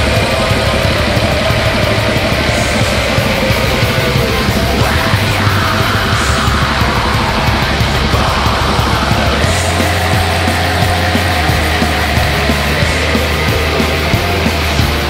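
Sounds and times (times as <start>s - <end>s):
distorted guitars: 0.0s - 15.0s
fast drumming: 0.0s - 15.0s.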